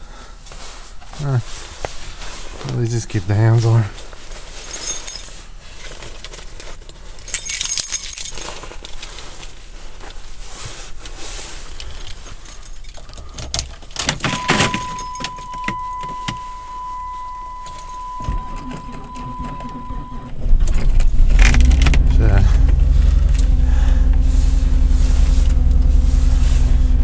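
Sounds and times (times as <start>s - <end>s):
car keys jangling: 4.6s - 9.8s, 11.7s - 22.0s
car warning chime tone: 13.0s - 20.3s.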